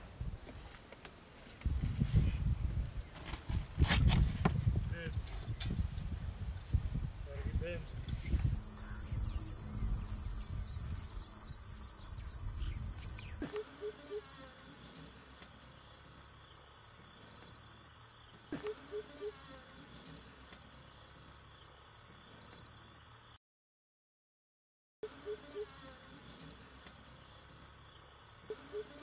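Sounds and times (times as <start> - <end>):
low pipping calls: 8.6 - 13.5
steady high whine: 8.6 - 13.5
high-pitched insect chorus: 8.6 - 23.4, 25.1 - 29.0.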